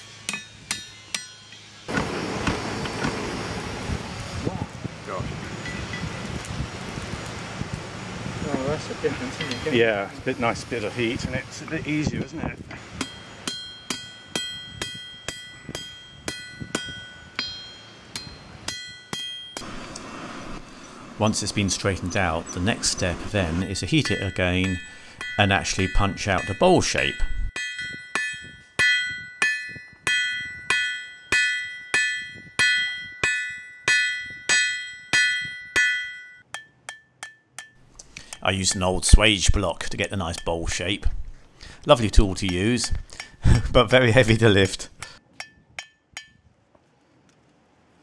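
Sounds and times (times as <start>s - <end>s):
hammer striking steel on anvil: 0.0s - 1.7s, 9.4s - 9.8s, 13.0s - 20.1s, 24.0s - 39.2s, 40.0s - 40.8s, 42.4s - 43.4s, 45.4s - 46.5s
anvil ringing: 0.0s - 1.8s, 13.0s - 19.8s, 23.7s - 37.8s, 45.4s - 46.4s.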